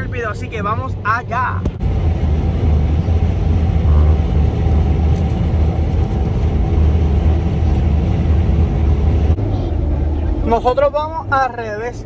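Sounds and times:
car driving interior rumble: 0.0 - 12.0.

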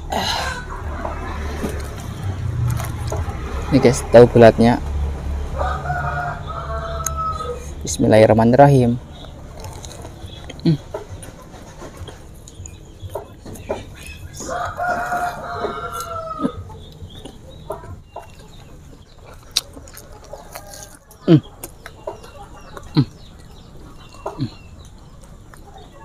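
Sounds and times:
rooster crowing: 5.5 - 7.8, 14.4 - 16.7
clicks of eating: 9.2 - 26.0.

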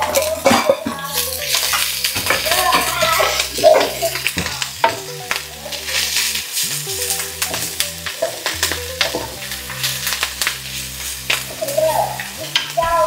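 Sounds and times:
spatula scraping pan: 0.0 - 5.0
food sizzling in hot oil: 0.0 - 13.0
soft background music: 0.0 - 13.0.

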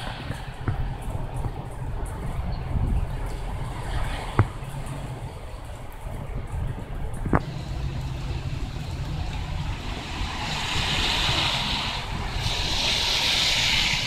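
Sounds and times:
steady rain: 0.0 - 14.0
wind rumble on microphone: 0.0 - 14.0
car tyres hissing through water: 7.4 - 14.0.

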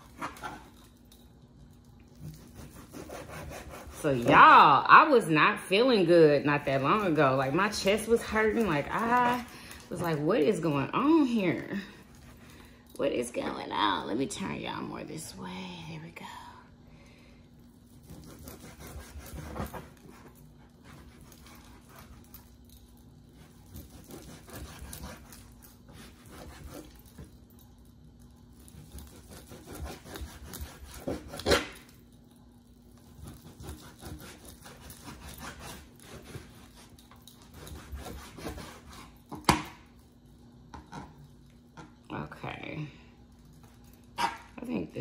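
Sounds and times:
faint steady hum: 0.0 - 45.0
knife slicing meat on cutting board: 2.3 - 4.2, 18.0 - 20.0, 28.8 - 31.8, 33.2 - 36.8, 37.5 - 39.6.

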